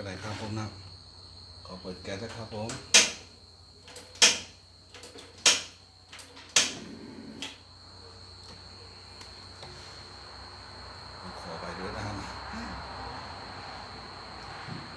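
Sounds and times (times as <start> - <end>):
gas stove igniter clicking: 4.1 - 4.5, 5.4 - 5.8, 6.5 - 6.8.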